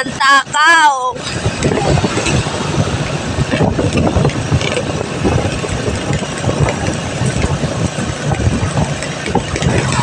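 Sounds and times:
wind rushing over microphone: 0.0 - 10.0
vehicle engine running: 1.2 - 10.0.

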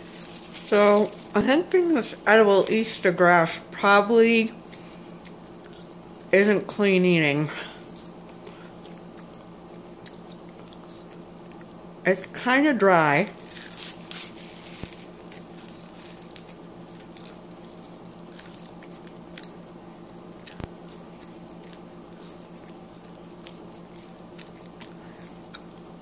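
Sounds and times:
faint chewing and mouth clicks: 4.7 - 6.3, 7.9 - 11.8, 13.6 - 26.0.

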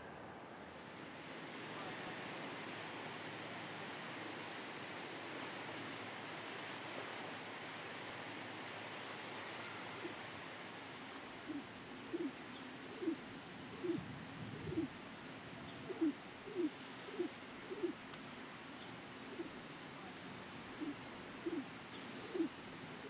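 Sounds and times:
steady hiss: 0.0 - 23.0
low cooing bird calls: 9.4 - 10.3, 11.2 - 19.6, 20.7 - 23.0.

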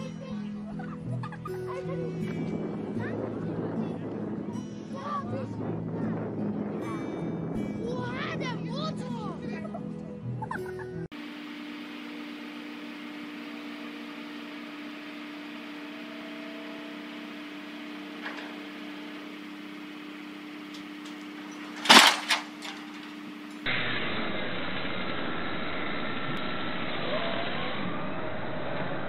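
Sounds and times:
engine hum: 0.0 - 29.0
dull rushing noise: 1.9 - 9.5, 11.2 - 29.0
loud sharp cracks: 21.0 - 23.1.

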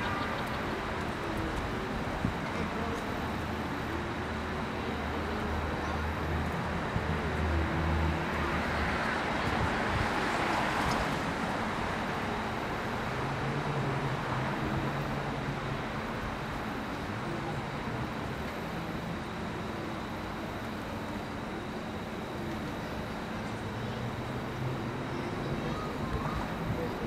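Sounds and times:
traffic engine hum: 0.0 - 27.0.

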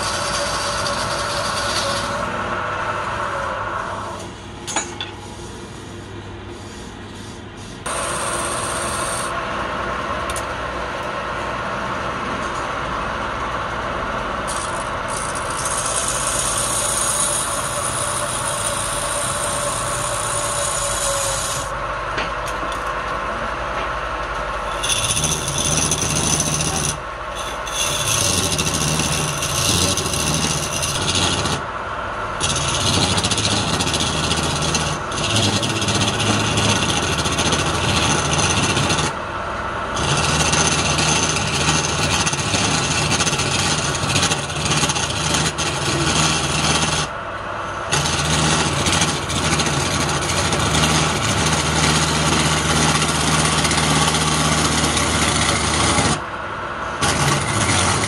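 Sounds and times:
wood lathe running: 0.0 - 4.2, 7.8 - 31.8, 32.4 - 58.0
chisel scraping spinning wood: 0.0 - 9.4, 14.4 - 31.7, 32.4 - 39.2, 39.9 - 47.2, 47.8 - 56.3, 56.9 - 58.0.

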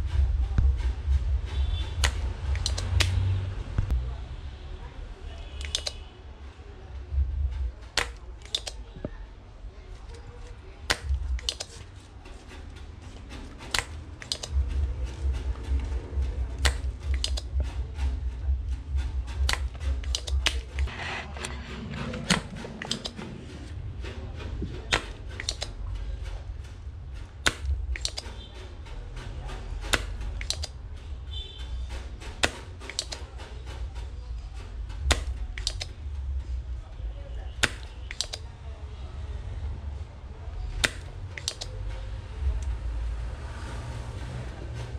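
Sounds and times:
small tools clicking and tapping: 1.7 - 3.3, 5.6 - 6.1, 7.5 - 9.2, 10.0 - 23.8, 24.6 - 36.5, 37.6 - 38.5, 40.6 - 42.8
steady low hum: 6.4 - 32.8.

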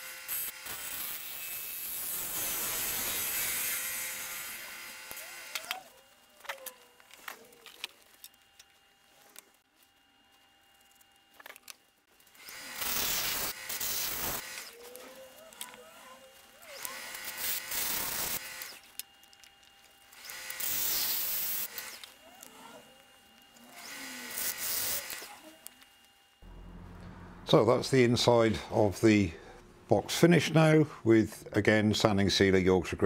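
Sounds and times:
wood lathe cutting noise: 0.0 - 7.1, 12.3 - 19.0, 19.9 - 29.6.

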